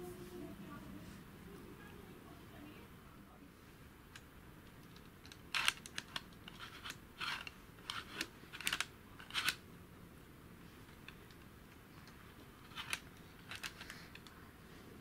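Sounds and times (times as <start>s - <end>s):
plastic model parts clicking: 4.1s - 9.6s, 11.0s - 14.3s.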